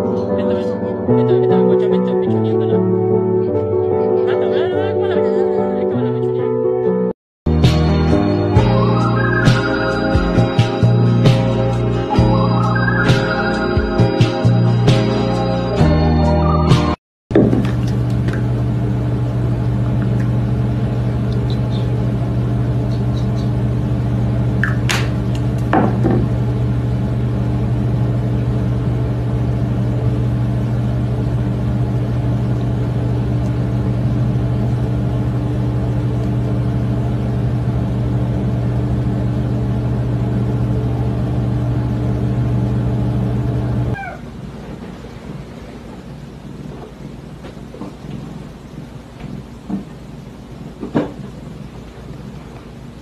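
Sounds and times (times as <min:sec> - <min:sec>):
loud low motor hum: 0:07.5 - 0:15.8, 0:17.4 - 0:53.0
short rising squeaks: 0:44.0 - 0:44.4.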